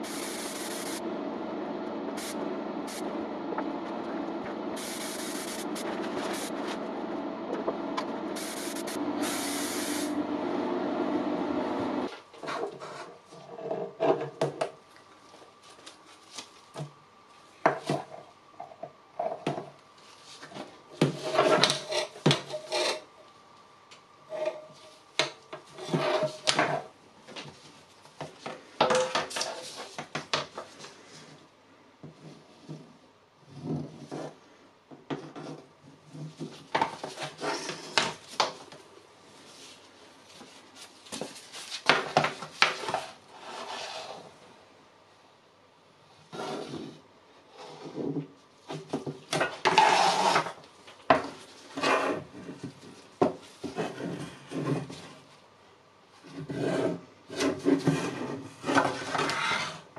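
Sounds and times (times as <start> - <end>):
steady hum with hiss bursts: 0.0 - 34.9, 35.5 - 59.9
hand sanding bodywork: 4.8 - 6.7, 8.4 - 10.1.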